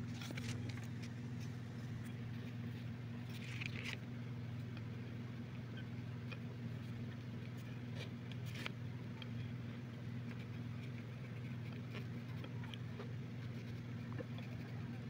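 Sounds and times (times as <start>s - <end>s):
steady low hum: 0.0s - 15.0s
pencil scratching on paper: 10.3s - 12.5s, 13.4s - 15.0s.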